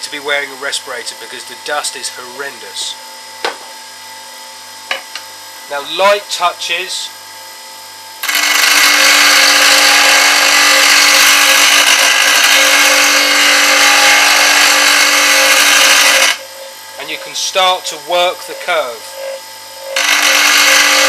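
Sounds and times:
bench grinder hum: 8.2s - 21.0s
grinding wheel grinding steel: 8.2s - 21.0s.

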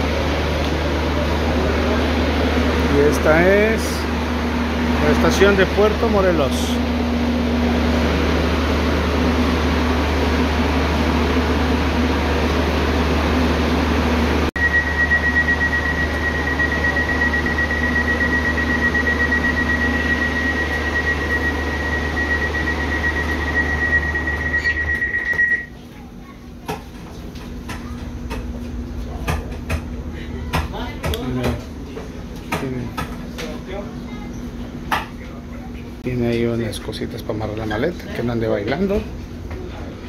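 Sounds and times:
train ventilation hum: 0.0s - 40.0s
platform noise: 14.6s - 25.8s.

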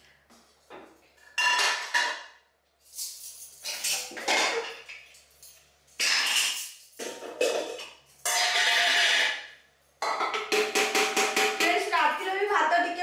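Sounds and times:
plates and utensils clattering: 0.8s - 2.2s, 3.1s - 9.4s.

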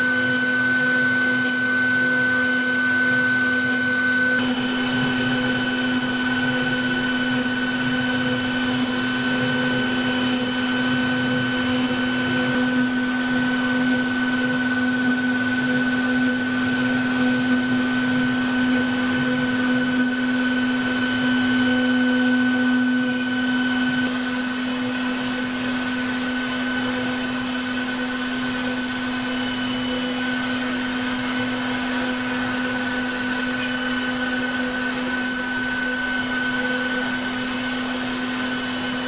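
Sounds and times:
router spindle whine: 0.0s - 39.0s.

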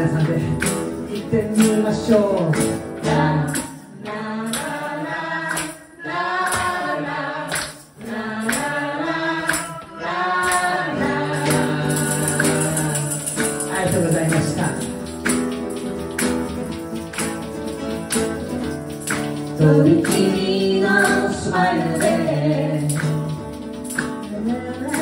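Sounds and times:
man and woman singing pop song: 0.0s - 15.0s, 19.6s - 25.0s
hand claps: 0.0s - 25.0s
tambourine: 0.0s - 25.0s.

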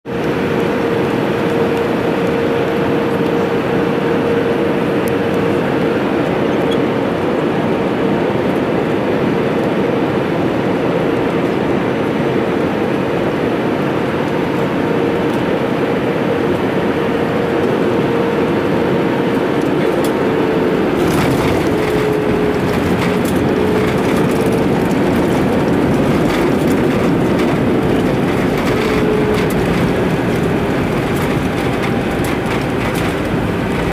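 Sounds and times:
aircraft cabin engine rush: 0.0s - 33.9s
steady whine: 13.2s - 33.9s
wheels rattling on runway: 13.3s - 33.9s.

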